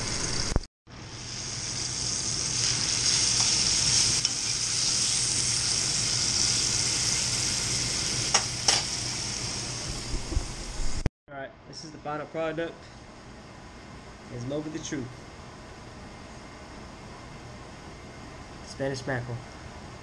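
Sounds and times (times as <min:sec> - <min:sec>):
fish sizzling in oil: 0:00.1 - 0:11.0.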